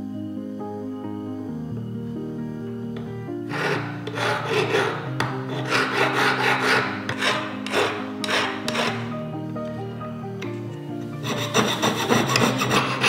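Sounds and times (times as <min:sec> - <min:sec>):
soft background music: 0:00.0 - 0:13.0
hand file rasping on metal: 0:03.5 - 0:09.1, 0:11.2 - 0:13.0.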